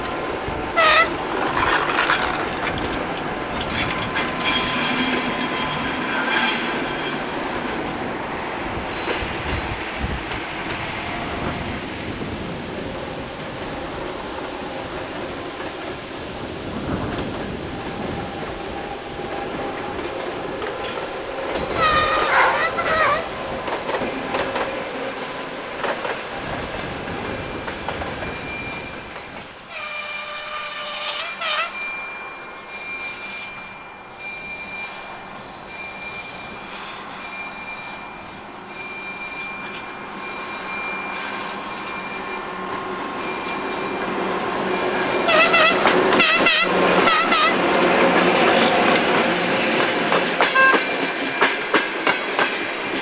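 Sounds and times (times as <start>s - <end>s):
rail joint clicks: 0.0s - 12.3s, 16.8s - 53.0s
train engine and wheels passing: 0.0s - 53.0s
train horn: 0.7s - 1.2s, 21.6s - 23.4s, 29.7s - 31.8s, 45.1s - 47.8s, 50.6s - 50.9s.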